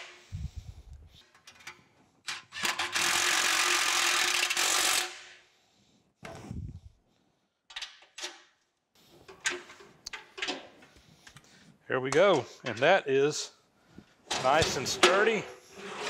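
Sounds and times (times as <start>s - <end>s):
cordless drill running: 3.0s - 5.2s.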